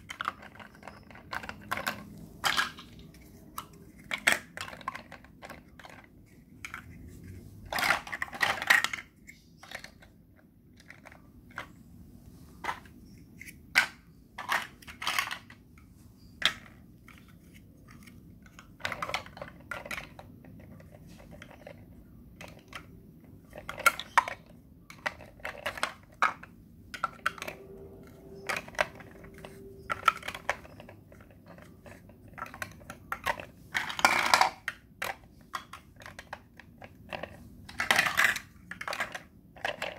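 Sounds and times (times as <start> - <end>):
blocks rattling together: 0.0 - 3.1, 7.6 - 10.1, 18.4 - 27.6, 28.4 - 39.9
plastic blocks clicking and clattering: 0.0 - 11.8, 12.6 - 39.9.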